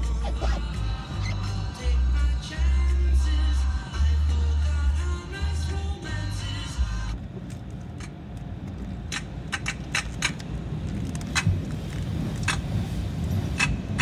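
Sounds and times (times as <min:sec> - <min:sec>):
low rumble inside car: 0:00.0 - 0:14.0
sharp clicks and ticks: 0:07.5 - 0:11.7, 0:12.4 - 0:12.6.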